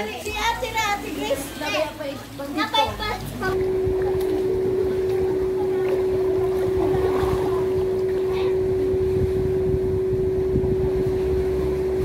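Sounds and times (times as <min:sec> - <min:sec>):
steady droning hum: 0:00.0 - 0:12.0
wind buffeting microphone: 0:03.4 - 0:12.0.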